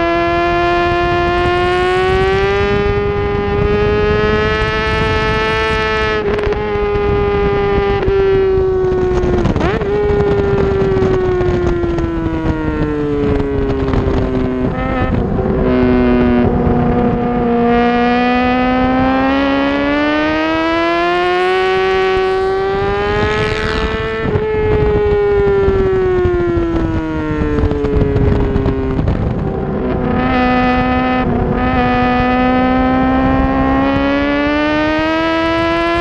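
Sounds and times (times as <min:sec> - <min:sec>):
motorcycle engine revving: 0:00.0 - 0:36.0.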